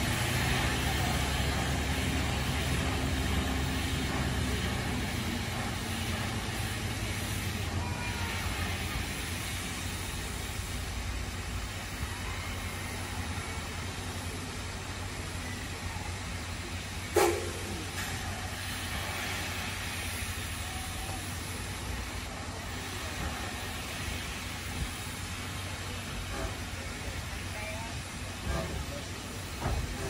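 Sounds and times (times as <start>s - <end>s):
faint voices of onlookers: 0.0s - 10.4s.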